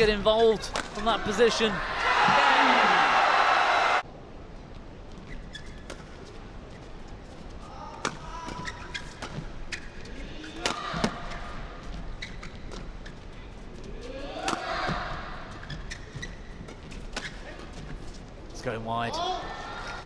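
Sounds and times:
rackets hitting shuttlecock: 0:00.7 - 0:01.0, 0:10.5 - 0:11.2, 0:14.4 - 0:15.0
shoes squeaking on court: 0:05.0 - 0:13.9, 0:14.5 - 0:18.6.

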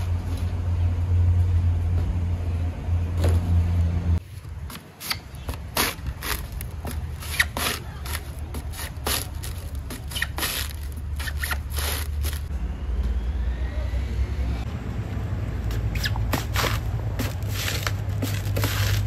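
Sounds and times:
coconut husk ripping: 0:04.4 - 0:12.5, 0:15.8 - 0:19.0.

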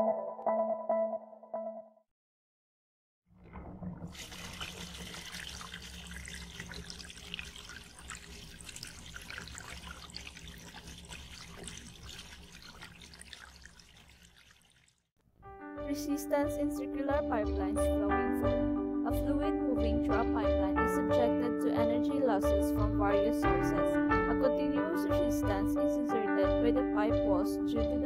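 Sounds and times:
water running and pouring: 0:03.3 - 0:15.1.

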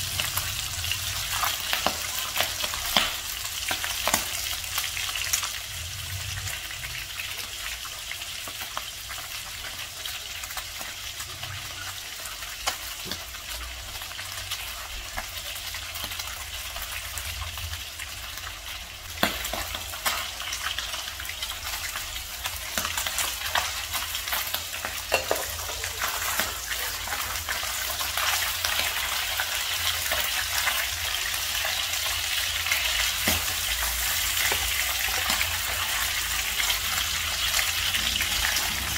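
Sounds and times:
fish sizzling in hot oil: 0:00.0 - 0:38.9.

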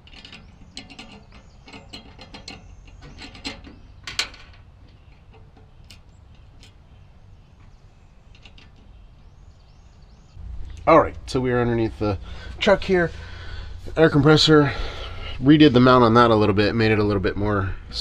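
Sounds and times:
hand tool clicking on bolts: 0:00.0 - 0:06.8.

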